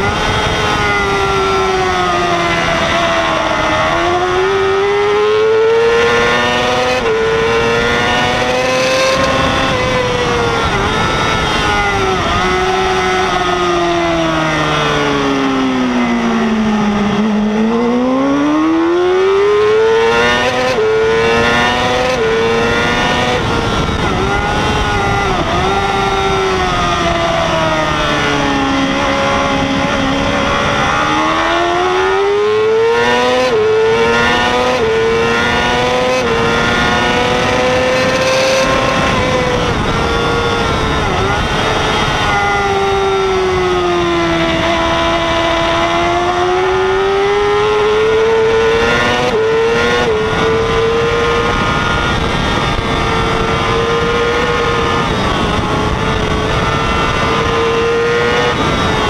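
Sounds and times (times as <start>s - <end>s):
motorcycle engine revving: 0.0s - 59.0s
wind rushing: 0.0s - 59.0s.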